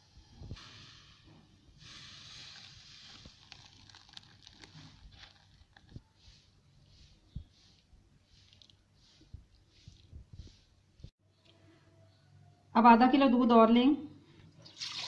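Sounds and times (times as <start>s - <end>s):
milk pouring and splashing: 1.8s - 6.0s, 14.6s - 15.0s.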